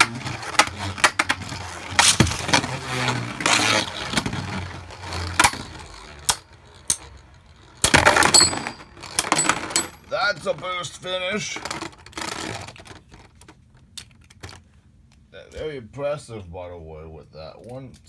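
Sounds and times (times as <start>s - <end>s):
spinning tops whirring: 0.0s - 10.2s
spinning tops clacking: 5.2s - 10.1s.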